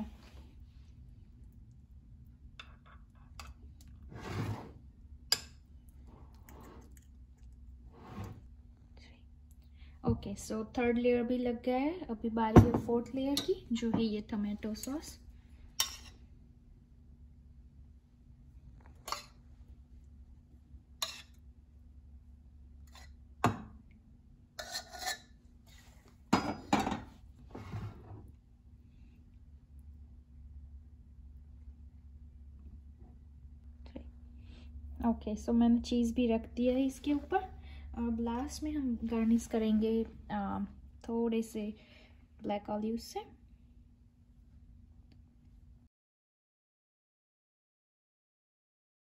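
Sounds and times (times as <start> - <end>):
spoon scraping metal bowl: 15.8 - 16.2, 21.0 - 21.4, 24.6 - 25.9
spoon scraping glass dish: 24.6 - 25.4.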